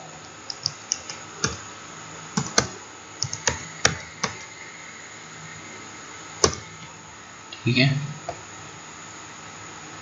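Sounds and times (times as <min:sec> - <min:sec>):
keyboard typing: 0:00.5 - 0:01.6, 0:02.4 - 0:04.5, 0:06.4 - 0:06.7.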